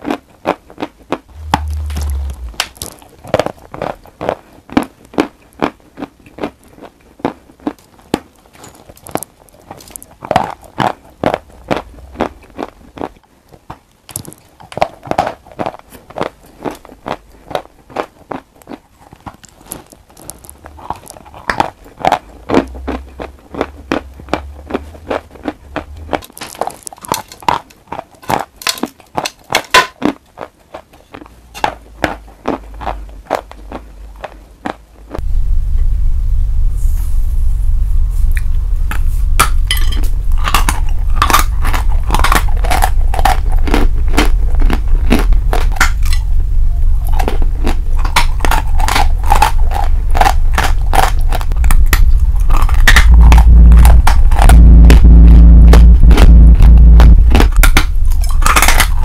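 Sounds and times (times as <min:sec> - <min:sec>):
chalk crunching when bitten: 0:40.3 - 0:46.2.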